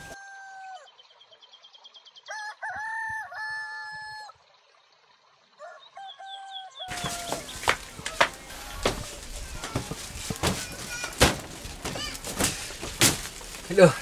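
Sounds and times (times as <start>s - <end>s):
rooster crowing: 0.0s - 0.9s, 2.3s - 4.3s, 5.6s - 13.4s.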